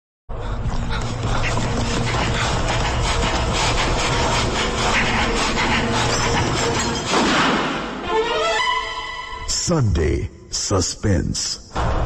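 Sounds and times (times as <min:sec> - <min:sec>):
rapid rasping scraping noise: 0:00.6 - 0:07.3.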